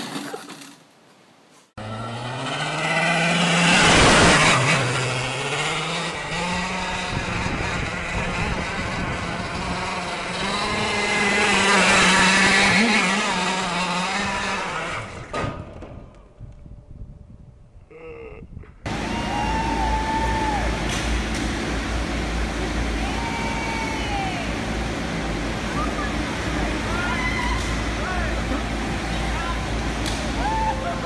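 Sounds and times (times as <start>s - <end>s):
go-kart engine revving: 1.8s - 15.3s, 18.9s - 31.0s.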